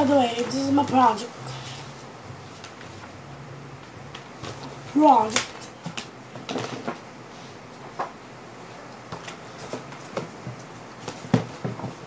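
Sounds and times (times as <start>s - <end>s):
handling taps and rustles: 9.0s - 12.0s.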